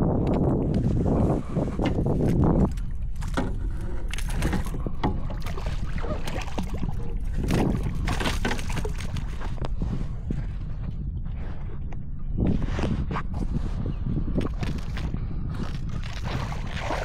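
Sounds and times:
wind on microphone: 0.0s - 17.0s
paddle splashing water: 1.8s - 9.6s, 16.0s - 17.0s.

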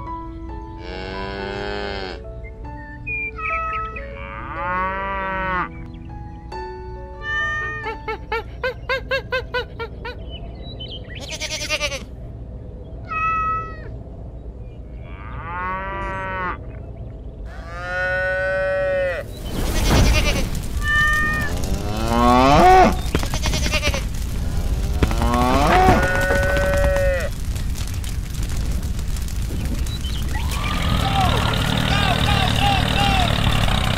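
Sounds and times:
cattle mooing: 0.8s - 2.2s, 17.5s - 19.3s, 21.6s - 23.1s, 25.0s - 27.3s
higher bleating calls: 0.8s - 2.2s, 11.2s - 12.1s, 17.5s - 24.1s, 24.9s - 27.3s
steady rushing noise: 19.3s - 33.9s.

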